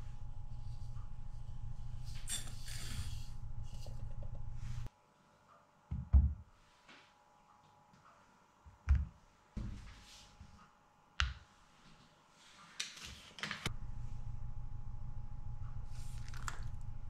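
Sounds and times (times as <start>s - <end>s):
steady low hum: 0.0s - 6.6s, 13.7s - 17.0s.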